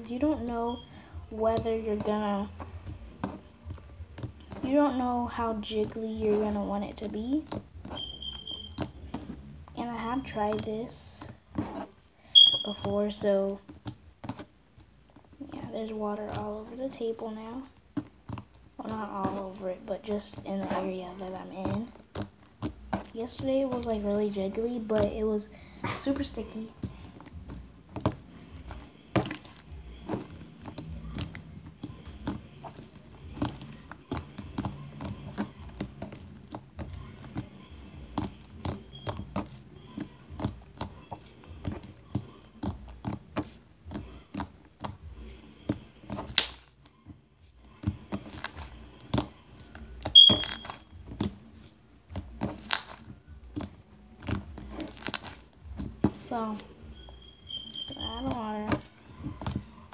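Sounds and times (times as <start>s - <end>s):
slime squelching: 0.0s - 59.9s
short high beep: 12.4s - 12.8s, 50.2s - 50.7s.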